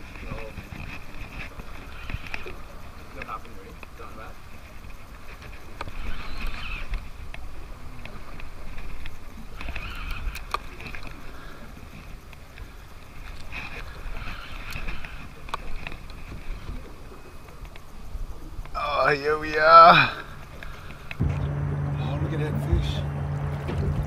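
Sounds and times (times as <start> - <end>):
fishing reel cranking: 0.8 - 2.5, 5.3 - 7.4, 8.3 - 11.2, 13.2 - 16.7
steady low rumble: 20.2 - 24.0.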